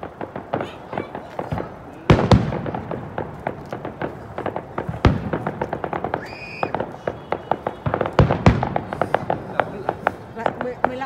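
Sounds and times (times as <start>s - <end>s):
fireworks bangs: 0.0s - 11.0s
fireworks crackling and popping: 0.0s - 11.0s.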